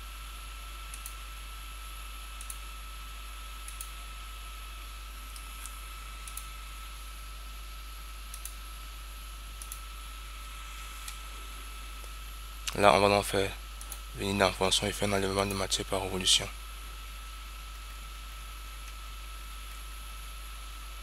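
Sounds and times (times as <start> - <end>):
computer mouse clicks: 0.9 - 1.2, 2.4 - 2.7, 3.6 - 4.0, 5.3 - 6.5, 8.3 - 8.6, 9.6 - 9.9
steady hiss: 5.2 - 19.0.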